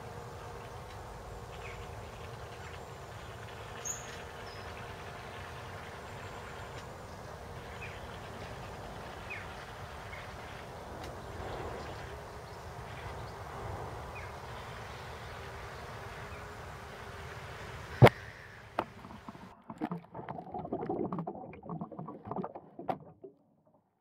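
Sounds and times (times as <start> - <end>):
wind: 0.0 - 20.1
muffled water knocks and sloshing: 18.8 - 23.5.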